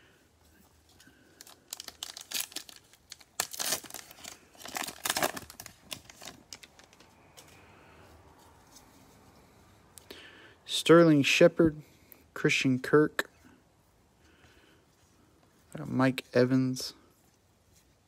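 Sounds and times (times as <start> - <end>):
foil wrapper tearing and crinkling: 1.4 - 7.0.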